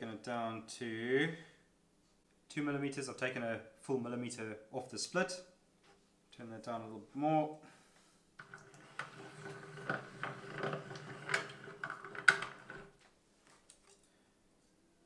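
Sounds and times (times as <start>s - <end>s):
hand-crank machine rollers: 8.4s - 12.9s.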